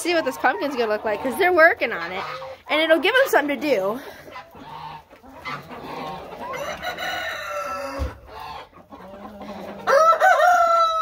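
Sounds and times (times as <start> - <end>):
chickens clucking: 0.0 - 11.0
rooster crowing: 6.5 - 8.2, 9.9 - 11.0.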